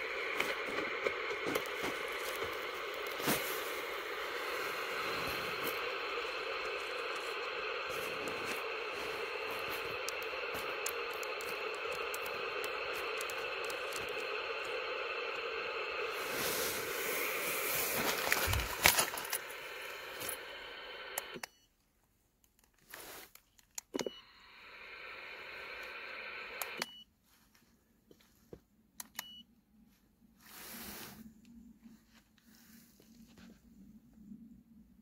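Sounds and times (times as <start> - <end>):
radio hiss: 0.0 - 21.5, 24.0 - 26.8.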